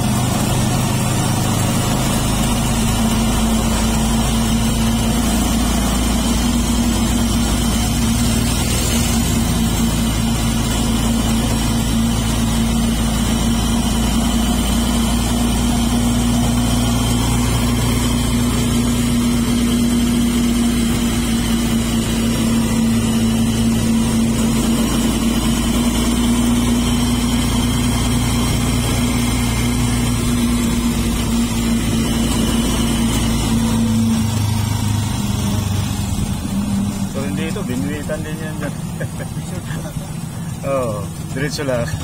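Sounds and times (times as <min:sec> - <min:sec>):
vehicle engine running while driving: 0:00.0 - 0:42.0.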